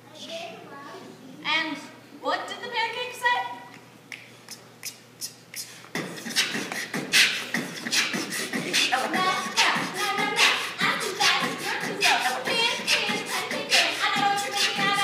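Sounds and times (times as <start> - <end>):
people beatboxing: 4.1 - 15.0.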